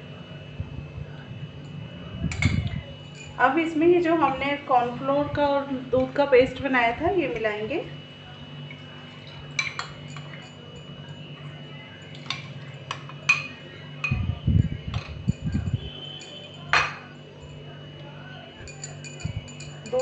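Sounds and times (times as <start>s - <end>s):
faint steady hum: 0.0s - 20.0s
handling and stirring noise: 8.5s - 17.7s, 18.5s - 20.0s
metal spoon clinking on glass bowl: 9.6s - 14.2s, 14.9s - 17.6s, 18.6s - 20.0s.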